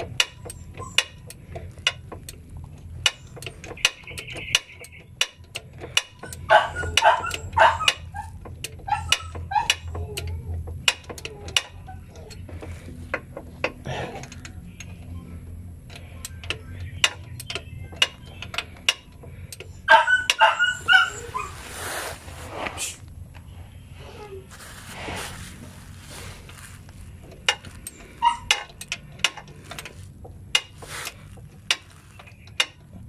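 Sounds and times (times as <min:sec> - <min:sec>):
ratchet wrench clicking: 0:00.0 - 0:15.2, 0:15.8 - 0:21.6, 0:26.4 - 0:33.0
dog barking: 0:06.3 - 0:08.3, 0:19.9 - 0:21.6.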